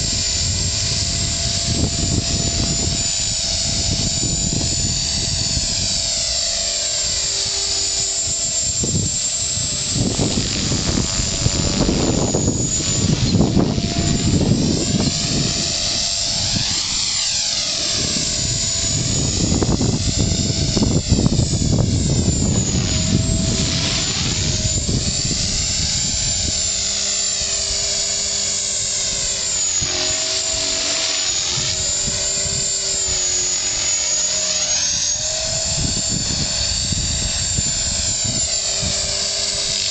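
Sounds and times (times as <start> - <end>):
rc helicopter motor whine: 0.0 - 39.9
low gusting rumbles: 8.8 - 26.6.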